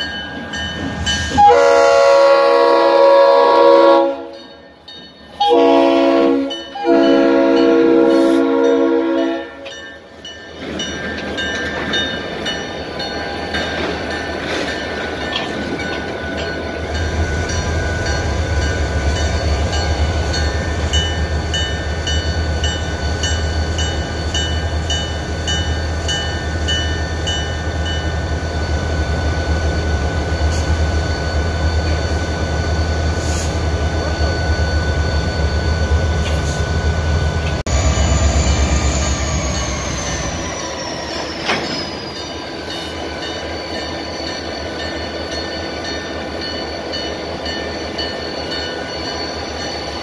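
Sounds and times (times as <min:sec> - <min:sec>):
grade-crossing bell dinging: 0:00.0 - 0:01.6, 0:04.2 - 0:50.0
diesel locomotive engines droning: 0:00.0 - 0:50.0
train horn blast: 0:01.3 - 0:04.4, 0:05.4 - 0:09.6.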